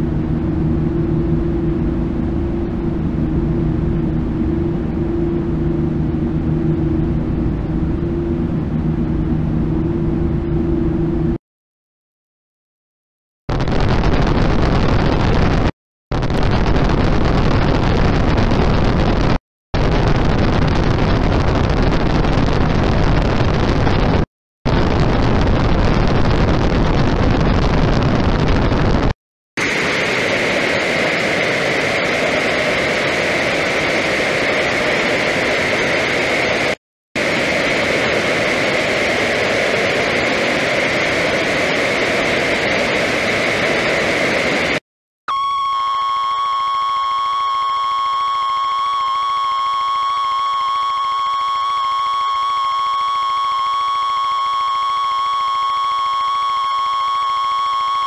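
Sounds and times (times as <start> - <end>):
loud static hiss: 13.5 - 44.8
piercing high tone: 45.3 - 58.0.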